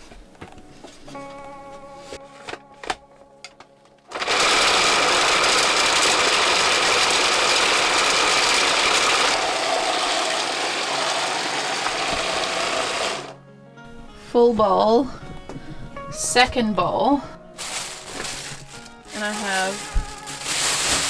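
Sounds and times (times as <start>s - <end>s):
electric food processor chopping: 4.1s - 13.4s.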